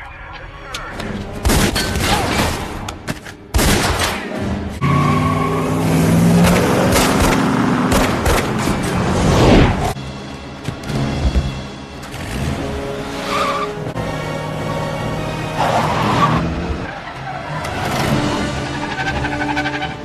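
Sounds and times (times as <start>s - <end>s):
film score: 0.0s - 20.0s
vehicle engines running: 4.4s - 20.0s.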